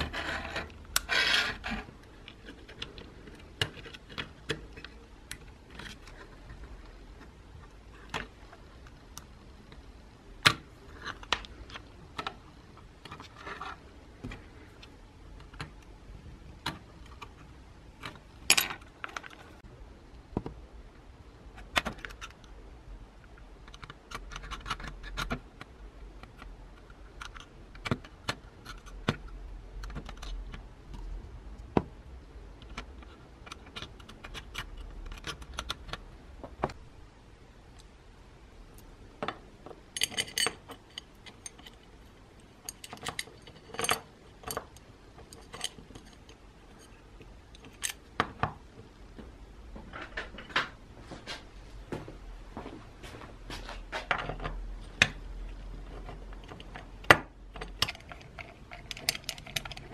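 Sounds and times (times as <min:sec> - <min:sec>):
gear parts clicking and clattering: 0:55.8 - 0:59.9.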